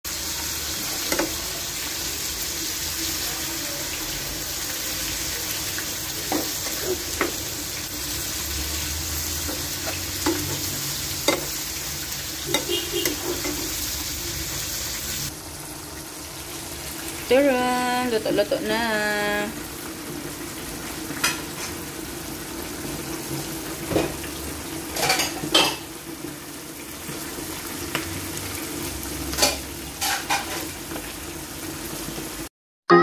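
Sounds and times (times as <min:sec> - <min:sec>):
stew sizzling in a pan: 0:00.1 - 0:32.5
metal spoon clinking on pan: 0:11.2 - 0:11.6, 0:12.5 - 0:13.8.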